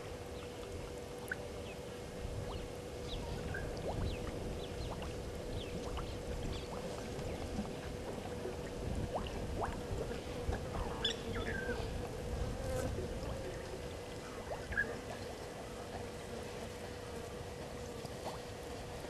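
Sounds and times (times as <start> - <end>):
low rumbling noise: 0.0 - 15.2
steady droning hum: 0.0 - 19.0.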